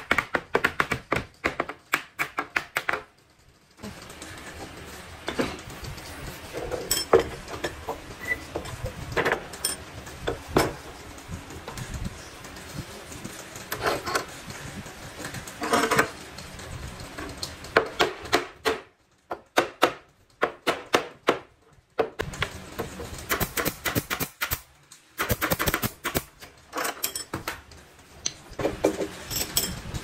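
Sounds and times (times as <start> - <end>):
knocks and clicks on wood: 0.0 - 3.1, 17.8 - 22.5.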